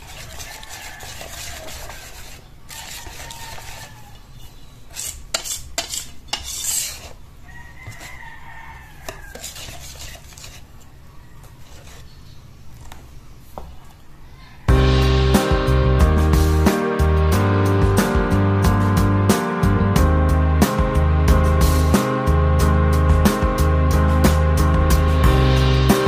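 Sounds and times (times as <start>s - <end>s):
whisk beating batter in metal bowl: 0.0s - 4.0s, 5.0s - 7.2s, 9.0s - 10.7s.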